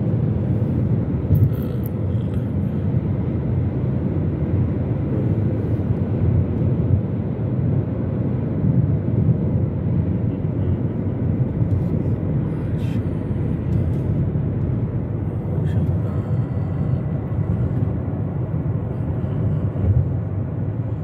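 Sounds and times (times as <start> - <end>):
car interior road rumble: 0.0 - 21.0.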